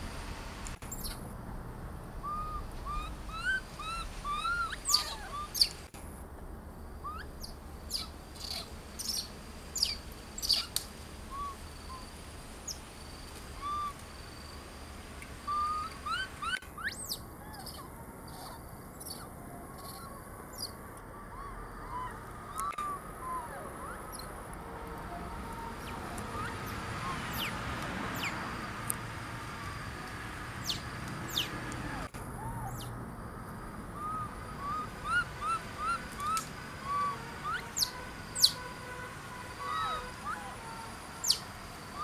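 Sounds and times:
forest background: 0.0 - 42.0
baby monkey squeaky calls: 2.2 - 5.8, 7.0 - 12.0, 13.6 - 14.0, 15.5 - 20.7, 25.8 - 27.5, 41.2 - 41.4.

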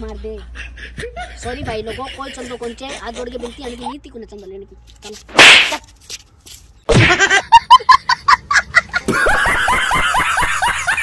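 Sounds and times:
laughter: 0.2 - 3.5, 6.9 - 11.0
loud slap: 5.3 - 5.8, 6.9 - 7.2.

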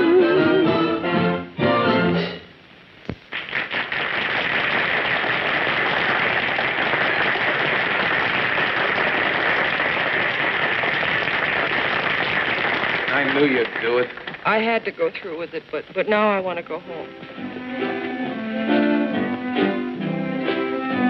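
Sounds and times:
audience applause: 3.3 - 14.9.

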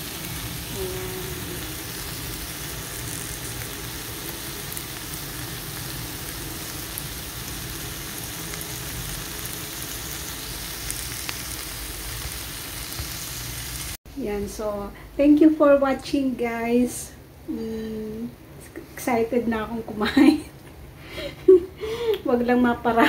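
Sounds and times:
vegetables sizzling in a frying pan: 0.0 - 17.1.

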